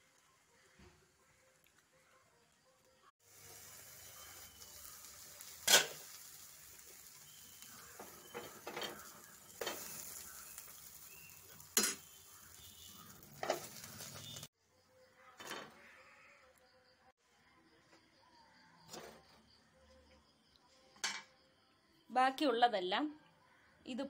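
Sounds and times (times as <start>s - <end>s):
batter sizzling in a frying pan: 3.2s - 14.5s.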